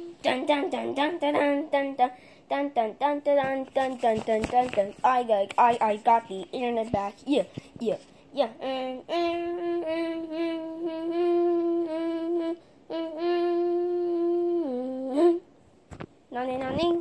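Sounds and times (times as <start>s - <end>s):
person humming a tune: 0.0s - 2.0s, 8.6s - 15.5s.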